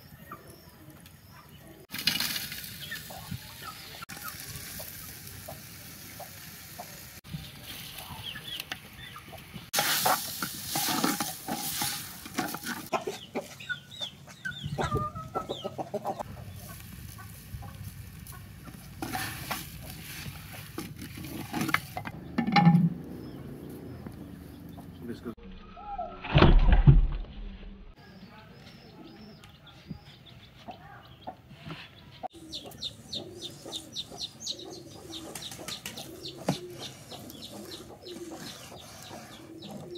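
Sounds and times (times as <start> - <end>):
vegetables sizzling in a pot: 1.9 - 7.6, 9.7 - 12.9
chickens clucking: 2.8 - 7.2, 7.8 - 22.4, 28.2 - 39.9.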